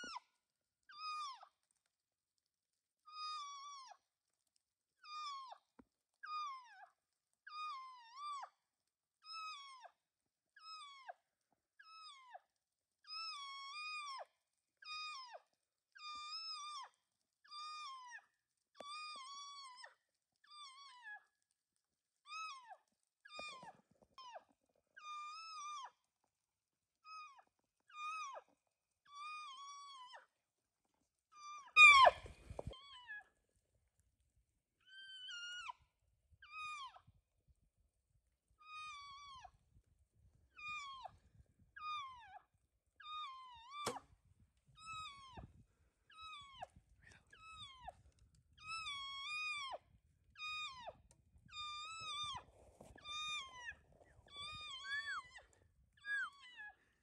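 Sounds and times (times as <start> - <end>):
elk mewing calls: 31.8 - 32.3.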